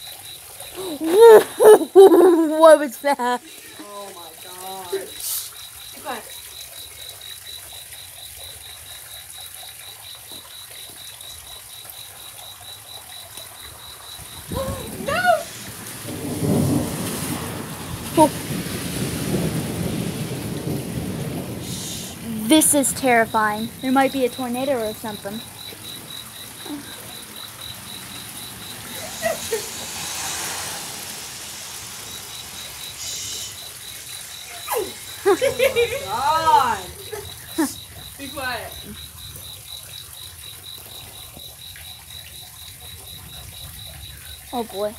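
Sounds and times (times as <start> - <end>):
cricket chirping: 0.0 - 44.9
rain hiss: 0.0 - 44.9
hiss: 5.1 - 5.7, 21.5 - 22.3, 28.7 - 35.2.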